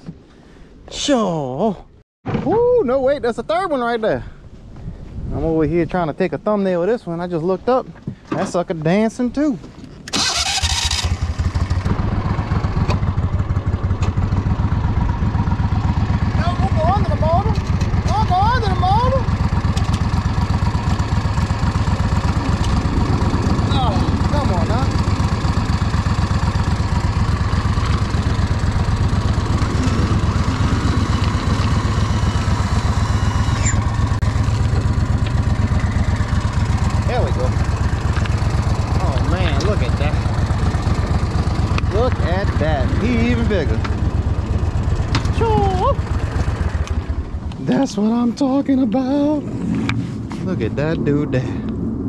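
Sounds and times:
boat motor running: 10.2 - 51.0.

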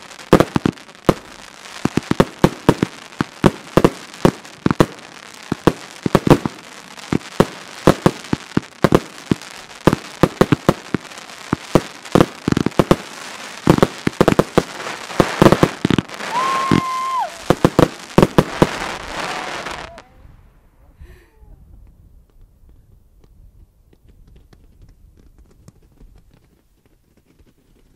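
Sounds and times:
fireworks bangs: 0.0 - 20.9.

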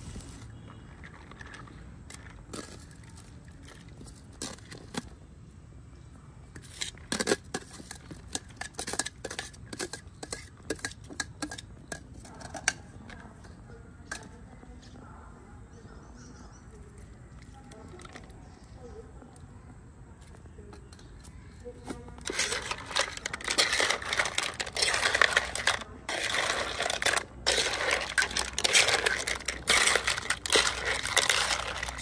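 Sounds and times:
low steady background noise: 0.0 - 32.0
hard objects clicking and clattering: 0.4 - 5.2, 6.5 - 14.4, 20.2 - 32.0.

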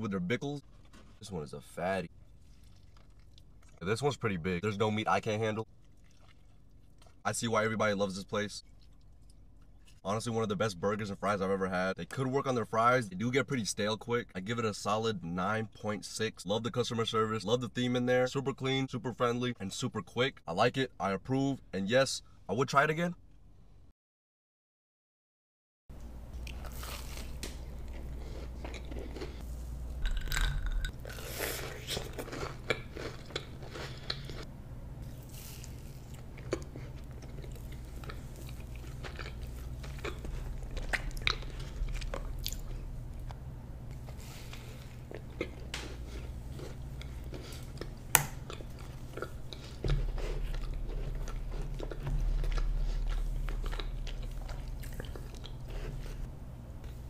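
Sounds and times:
low hum: 26.0 - 57.0
person eating cookie: 26.3 - 57.0.

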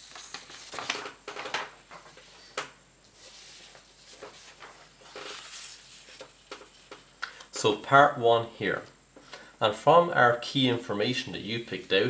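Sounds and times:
paper rustling and scraping: 0.0 - 2.5, 3.1 - 7.1.

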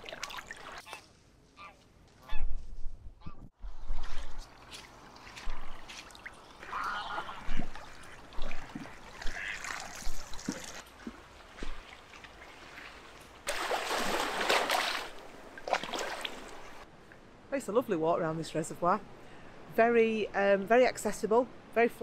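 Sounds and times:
small waves lapping: 0.0 - 1.1, 3.6 - 17.2
rush of water: 3.6 - 16.9.

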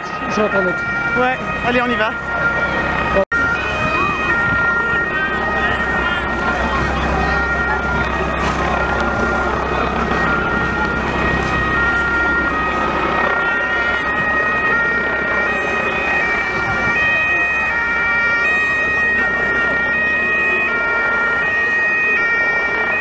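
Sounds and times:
noisy hubbub: 0.0 - 23.0
police two-tone sirens: 0.0 - 23.0
steady high tone: 0.0 - 23.0.

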